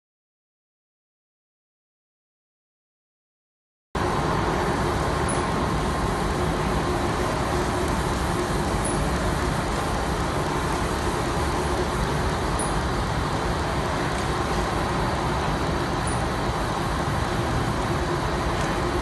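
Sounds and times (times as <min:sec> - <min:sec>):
production line running: 0:04.0 - 0:19.0.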